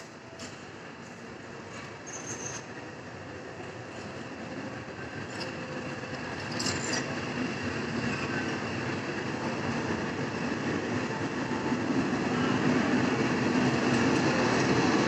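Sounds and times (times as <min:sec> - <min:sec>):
train wheels rumbling on rails: 0:00.0 - 0:15.0
high wheel squeals: 0:02.0 - 0:02.7.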